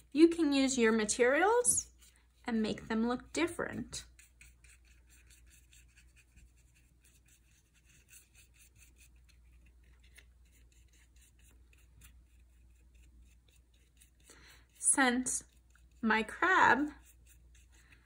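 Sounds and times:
paintbrush scratching on carton: 0:00.0 - 0:18.0.

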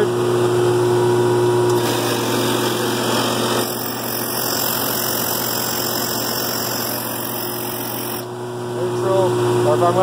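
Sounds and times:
blower machine hum with hiss: 0:00.0 - 0:03.6.

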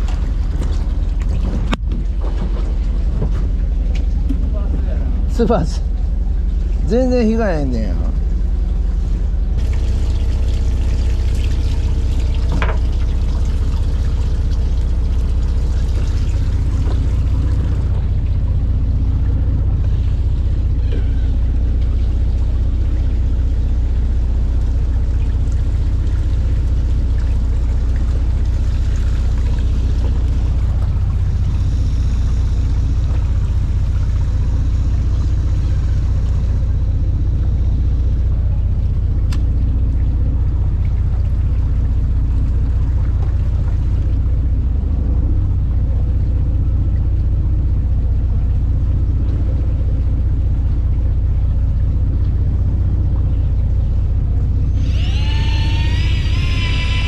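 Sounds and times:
water pouring and splashing: 0:00.0 - 0:44.6
boat engine rumbling: 0:00.0 - 0:57.0.

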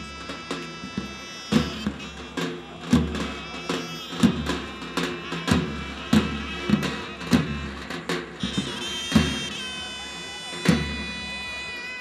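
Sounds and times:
bass drum beating steadily: 0:00.0 - 0:10.0
shrill reed pipe notes: 0:03.1 - 0:07.8.

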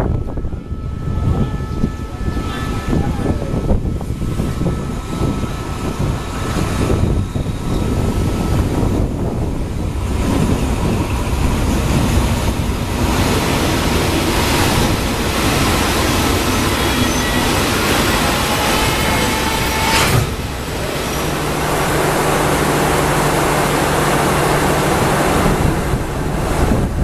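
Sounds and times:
freight train rumbling on rails: 0:00.0 - 0:27.0
metallic wheel squeal: 0:15.9 - 0:20.4.

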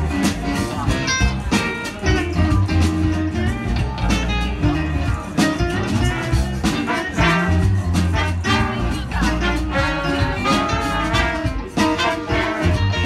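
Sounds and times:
bass guitar: 0:00.0 - 0:13.0
drums: 0:00.0 - 0:13.0
electric guitar: 0:00.0 - 0:13.0
trombone: 0:04.6 - 0:13.0
trumpet: 0:05.9 - 0:13.0.

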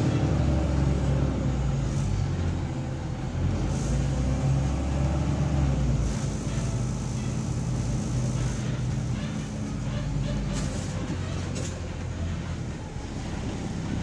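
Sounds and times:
bus engine running: 0:00.0 - 0:14.0
road and cabin noise: 0:00.0 - 0:14.0.

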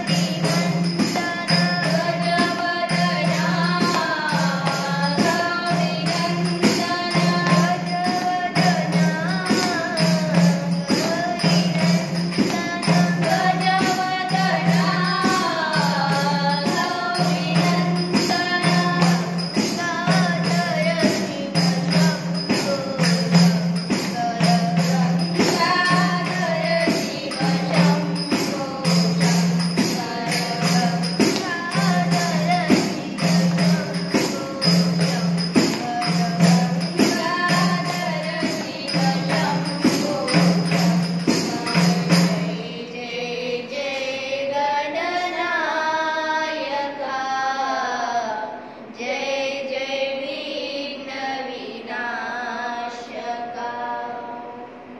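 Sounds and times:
jingling tambourine beat: 0:00.0 - 0:44.2.

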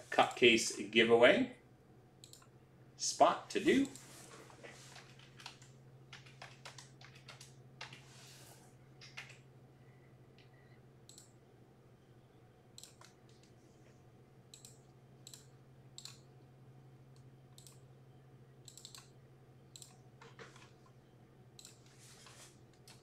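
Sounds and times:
low steady hum: 0:00.0 - 0:23.0
keyboard and mouse clicks: 0:02.2 - 0:02.5, 0:04.9 - 0:08.1, 0:09.0 - 0:09.4, 0:11.1 - 0:11.4, 0:12.8 - 0:13.6, 0:14.5 - 0:16.3, 0:17.2 - 0:17.8, 0:18.6 - 0:20.9, 0:21.6 - 0:21.9.

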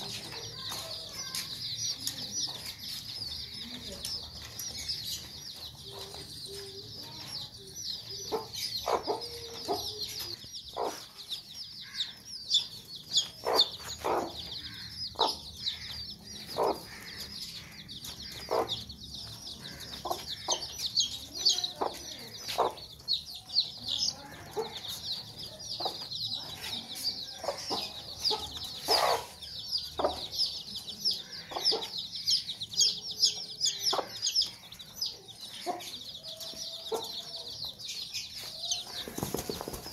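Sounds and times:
chicks peeping: 0:00.0 - 0:39.9
hen clucking: 0:08.0 - 0:37.4.

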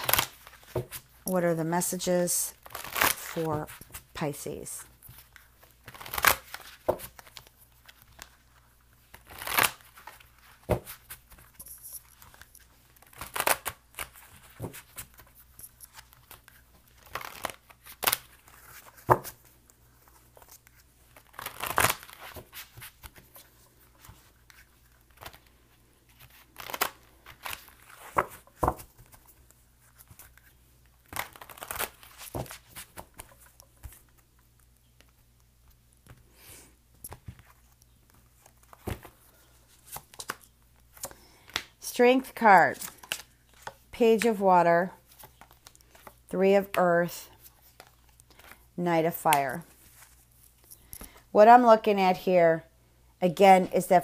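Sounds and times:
cards being shuffled: 0:00.0 - 0:01.3, 0:02.6 - 0:41.8, 0:45.0 - 0:48.6.

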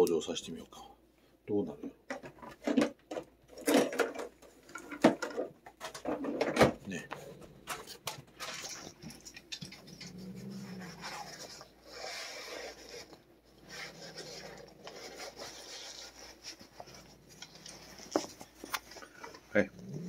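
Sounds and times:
cat growling: 0:06.8 - 0:18.4, 0:19.5 - 0:20.0
leather glove rubbing and scraping: 0:10.1 - 0:19.1.

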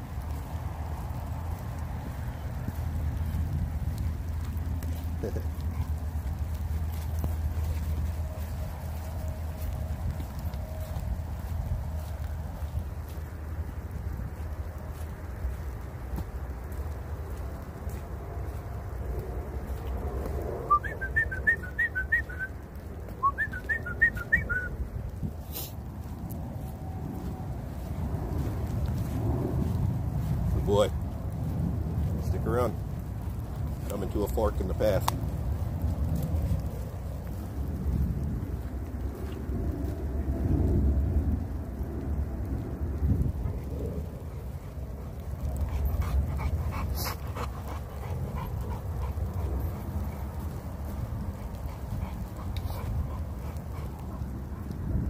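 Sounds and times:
steady low rumble: 0:00.0 - 0:55.0
dog panting: 0:04.9 - 0:09.2, 0:43.3 - 0:55.0.

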